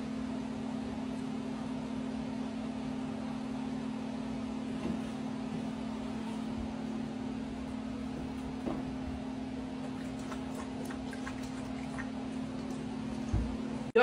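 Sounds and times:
steady low hum: 0.0s - 14.0s
dog lapping from a bowl: 9.8s - 13.3s.

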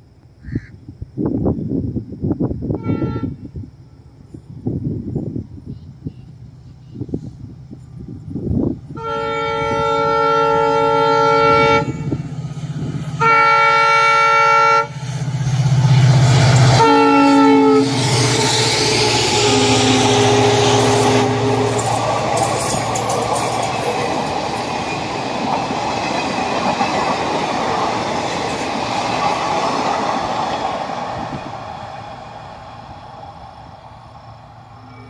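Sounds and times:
locomotive horn blasts: 2.8s - 3.4s, 9.0s - 12.3s, 13.1s - 15.0s, 16.6s - 22.6s, 34.8s - 35.0s.

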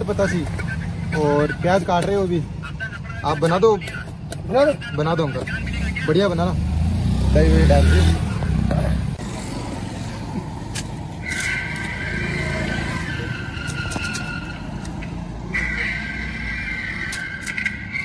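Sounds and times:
roadside traffic rumble: 0.0s - 18.0s.

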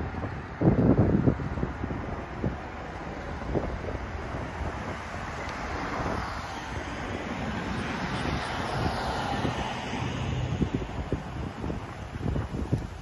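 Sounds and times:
car passing: 0.0s - 13.0s
steady traffic noise: 0.0s - 13.0s
wind buffeting microphone: 0.0s - 13.0s.

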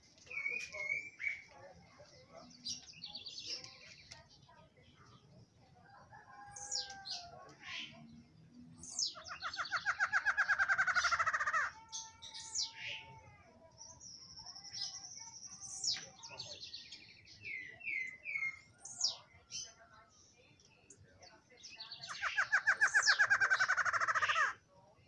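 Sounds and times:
bird singing rapid notes: 6.6s - 12.8s, 20.9s - 24.6s.

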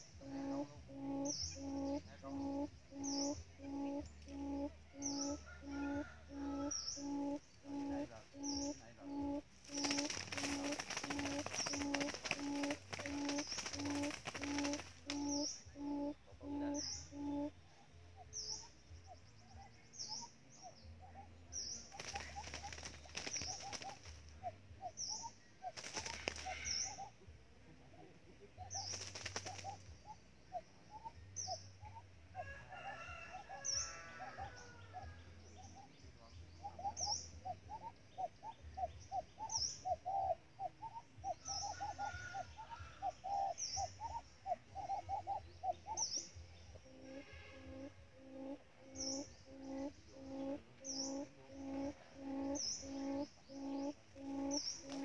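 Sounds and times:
birds chirping: 0.0s - 55.0s
bird wings flapping: 9.6s - 15.4s, 21.9s - 24.3s, 25.7s - 26.8s, 28.8s - 29.9s, 54.3s - 55.0s.

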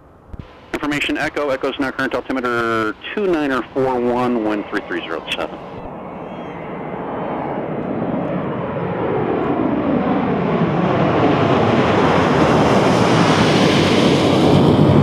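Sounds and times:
jet airliner roaring overhead: 0.7s - 15.0s.

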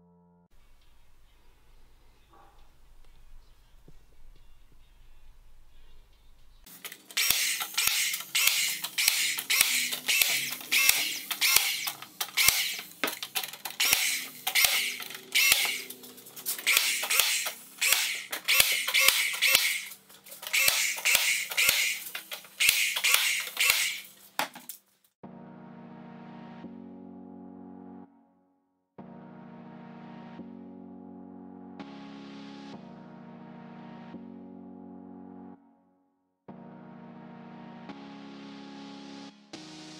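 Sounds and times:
nail gun firing: 6.7s - 24.6s.

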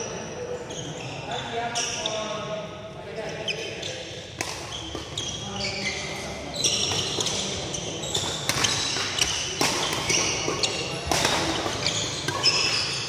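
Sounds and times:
sneakers squeaking on court: 3.4s - 13.0s
racket hitting shuttlecock: 4.4s - 5.2s, 8.1s - 13.0s.

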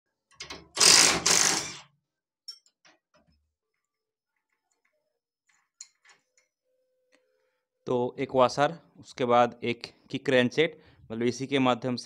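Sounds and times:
impact wrench hammering: 0.8s - 1.8s.

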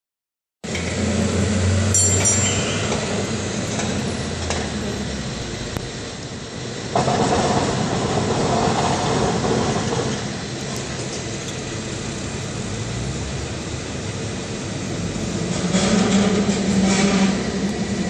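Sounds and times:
cable car rail rumble: 0.6s - 18.0s
high metallic ringing: 1.9s - 3.3s.

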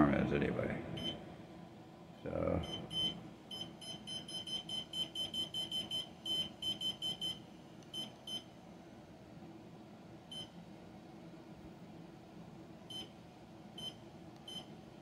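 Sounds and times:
high electronic clock beeps: 2.6s - 7.4s.

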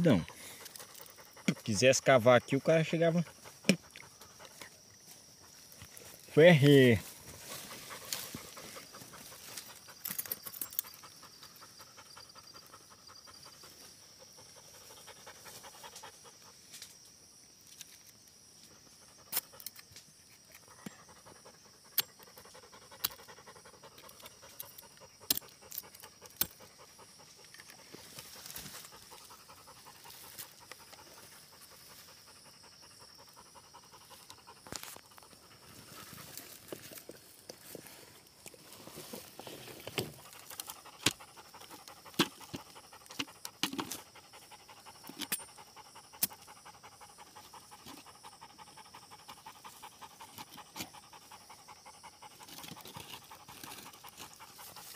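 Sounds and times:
dog panting: 0.2s - 4.7s, 7.5s - 10.0s, 10.8s - 16.6s, 20.6s - 27.6s, 28.8s - 36.4s, 40.1s - 54.9s.

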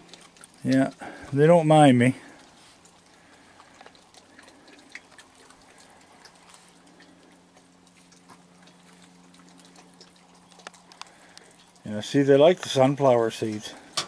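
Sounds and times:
animals crunching seeds: 0.0s - 14.0s
faint low hum: 0.0s - 14.0s.

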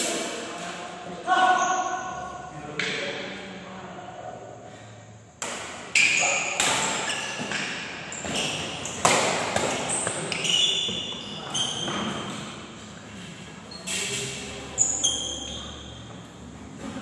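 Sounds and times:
shoes squeaking on court floor: 1.4s - 2.3s, 5.9s - 17.0s
racket striking shuttlecock: 5.4s - 7.8s, 8.4s - 10.4s.

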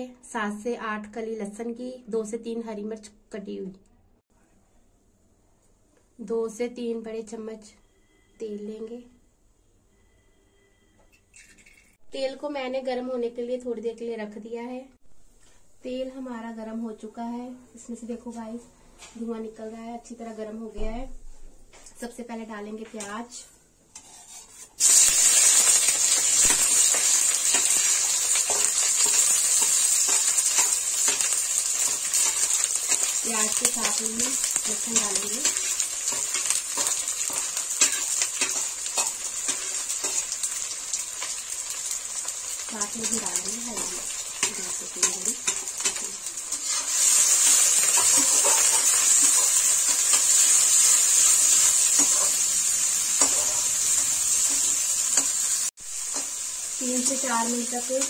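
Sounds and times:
steel spoon scraping a plate: 23.9s - 33.2s, 34.6s - 40.2s, 45.4s - 50.2s, 51.6s - 52.5s, 53.2s - 53.7s
onions sizzling in hot oil: 24.0s - 58.0s.

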